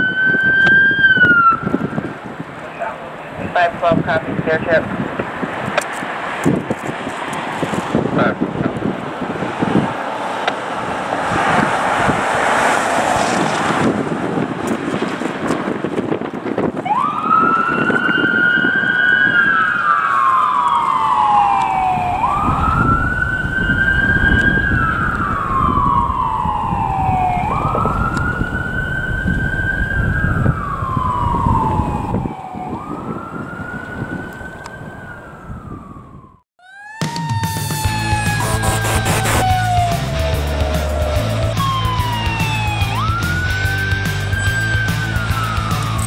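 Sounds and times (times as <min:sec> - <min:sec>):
ambulance siren wailing: 0:00.0 - 0:02.2, 0:16.8 - 0:46.0
low traffic rumble: 0:00.0 - 0:36.4, 0:37.4 - 0:46.0.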